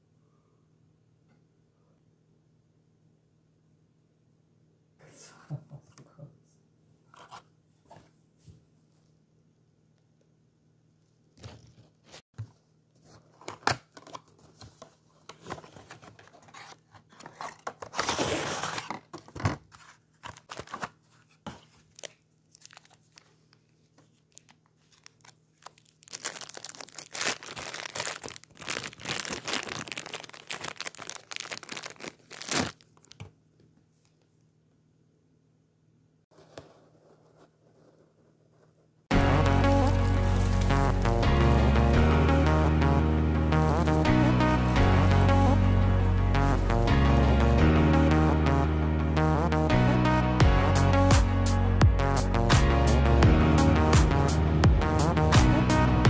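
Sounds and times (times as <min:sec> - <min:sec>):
plastic rustling and crinkling: 0:11.4 - 0:33.3, 0:39.9 - 0:40.9
packaging tearing: 0:16.2 - 0:19.3, 0:20.2 - 0:21.0, 0:21.8 - 0:23.4, 0:24.3 - 0:33.2.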